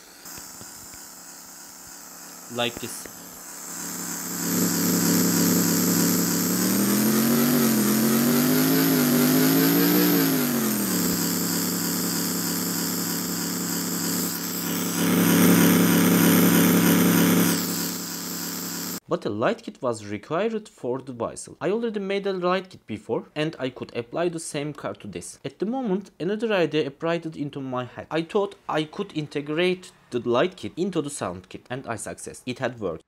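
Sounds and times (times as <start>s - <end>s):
simulated car engine through speaker: 2.5s - 17.7s.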